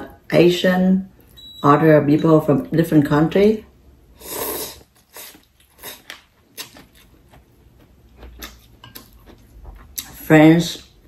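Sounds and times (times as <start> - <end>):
person slurping noodles: 4.2 - 6.1
chewing: 4.8 - 10.3
chopsticks against a bowl: 6.0 - 10.2.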